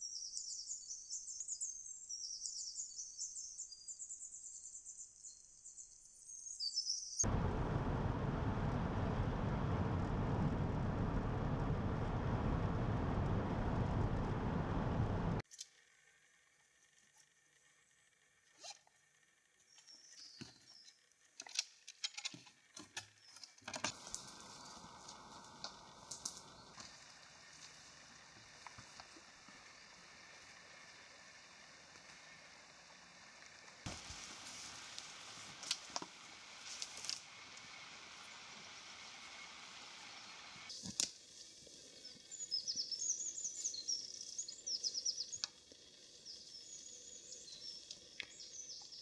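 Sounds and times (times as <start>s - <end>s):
car road and engine noise: 7.2s - 15.4s, 23.9s - 34.2s, 36.1s - 40.7s
steady outdoor hiss: 7.2s - 21.8s, 23.8s - 49.0s.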